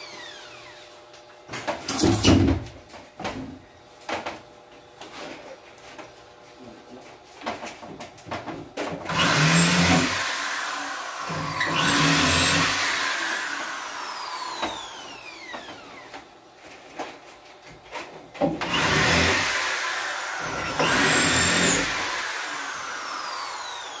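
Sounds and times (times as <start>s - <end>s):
electric drill whine: 0.0s - 1.0s, 9.1s - 16.1s, 18.6s - 24.0s.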